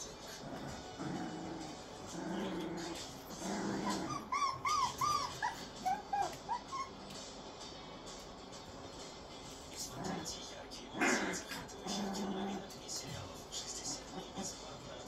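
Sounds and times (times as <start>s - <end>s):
puppies growling: 0.0s - 7.7s, 9.5s - 13.1s, 13.8s - 14.8s
puppies whimpering and yipping: 3.7s - 7.2s.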